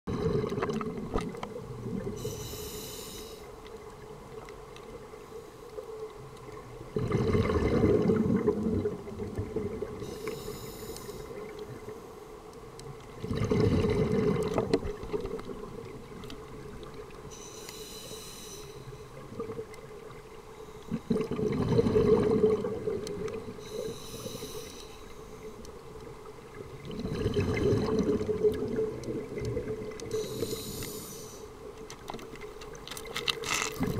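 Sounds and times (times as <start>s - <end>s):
bubbling exhale: 0.1s - 1.1s, 6.9s - 11.5s, 13.2s - 14.8s, 20.9s - 24.9s, 26.8s - 28.9s
regulator inhale hiss: 2.2s - 3.6s, 10.0s - 12.3s, 17.3s - 19.2s, 23.5s - 25.6s, 30.1s - 31.6s.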